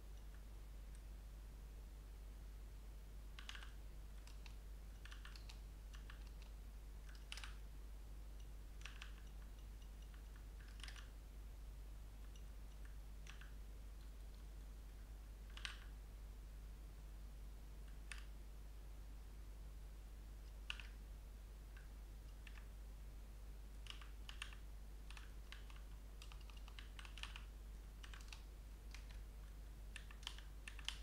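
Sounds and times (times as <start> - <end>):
steady low hum: 0.0 - 31.0
computer keyboard keystrokes: 3.4 - 7.6, 8.8 - 11.1, 12.3 - 14.4, 15.4 - 15.9, 20.5 - 21.0, 21.8 - 22.7, 23.8 - 29.2, 29.9 - 31.0.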